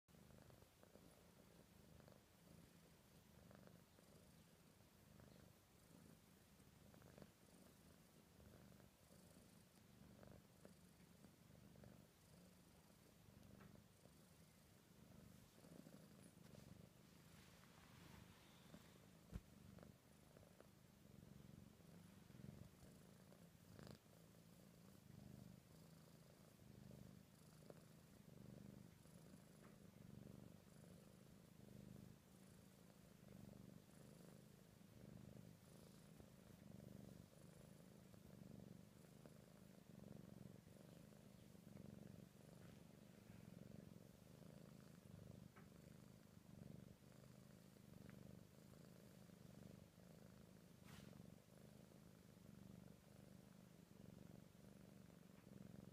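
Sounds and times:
kitten purring: 0:00.0 - 0:55.9.

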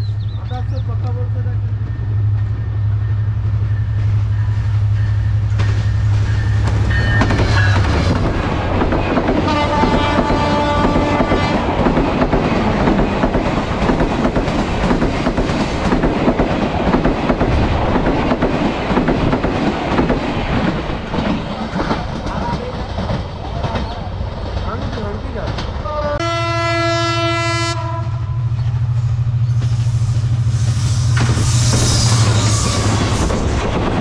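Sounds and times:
train coaches rushing by: 0:00.0 - 0:26.6, 0:28.4 - 0:34.0
train horn: 0:09.4 - 0:11.8, 0:25.8 - 0:28.5, 0:31.5 - 0:33.3.

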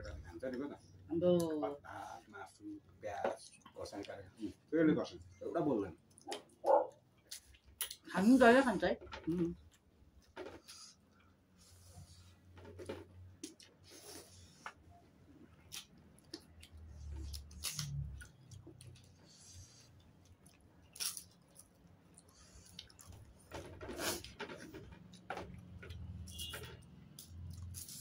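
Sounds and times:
chewing: 0:06.0 - 0:08.1, 0:15.5 - 0:26.4.

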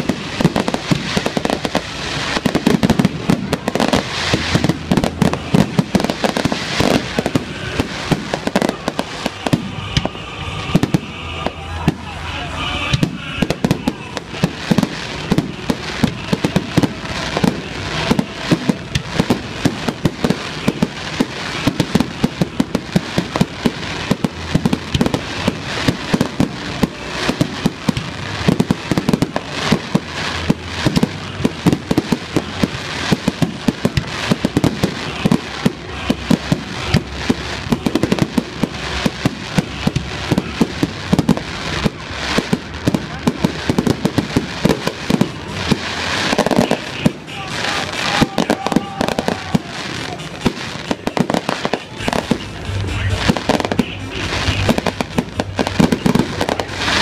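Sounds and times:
fireworks bangs and crackle: 0:00.0 - 0:57.0.

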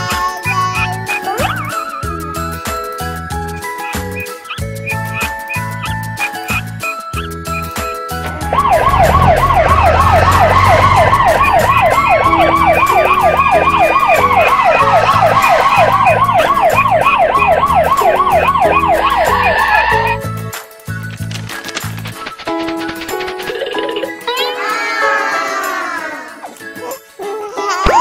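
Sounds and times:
background music: 0:00.0 - 0:28.0
police siren yelping: 0:08.3 - 0:20.3.

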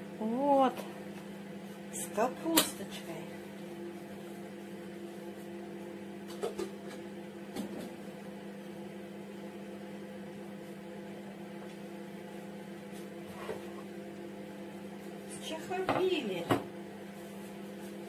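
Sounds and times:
microwave oven humming: 0:00.0 - 0:18.0.

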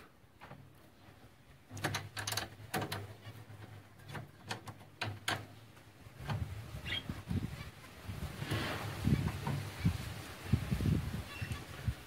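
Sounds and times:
metal birdcage clicking and rattling: 0:01.7 - 0:05.6.

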